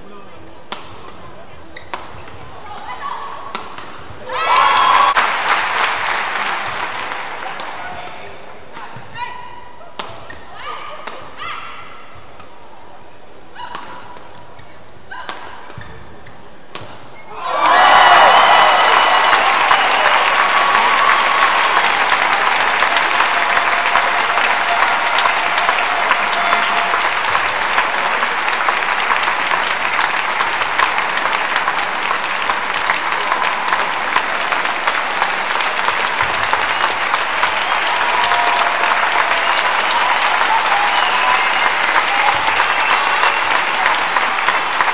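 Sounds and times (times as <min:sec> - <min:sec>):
racket hitting shuttlecock: 0:00.7 - 0:01.2, 0:01.8 - 0:02.5, 0:03.5 - 0:04.2, 0:10.0 - 0:11.4, 0:13.6 - 0:14.4, 0:15.2 - 0:16.0, 0:16.7 - 0:17.2
shoes squeaking on court: 0:01.7 - 0:02.5, 0:14.3 - 0:15.0, 0:15.7 - 0:17.3
crowd applauding: 0:04.4 - 0:07.8, 0:17.4 - 0:44.9.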